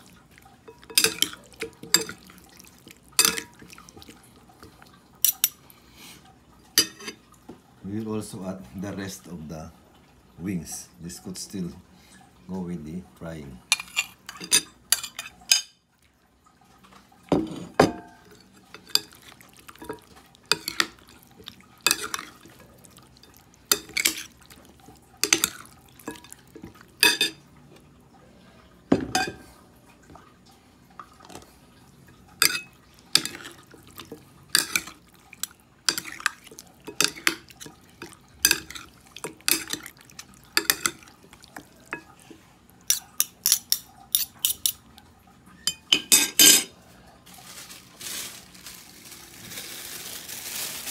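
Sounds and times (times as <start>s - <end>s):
spoons clinking against ceramic bowl: 0.7s - 2.3s, 3.2s - 3.6s, 5.2s - 5.6s, 13.7s - 15.8s, 17.9s - 21.1s, 21.8s - 22.5s, 23.2s - 24.3s, 25.2s - 26.4s, 27.0s - 27.4s, 32.4s - 35.0s, 35.9s - 39.9s, 40.6s - 41.1s, 42.9s - 44.8s, 45.6s - 46.7s.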